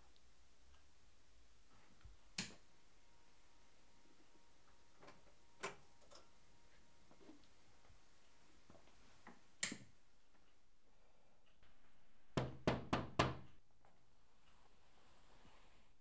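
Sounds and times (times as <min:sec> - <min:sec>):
knocks on a door: 0:12.4 - 0:13.5.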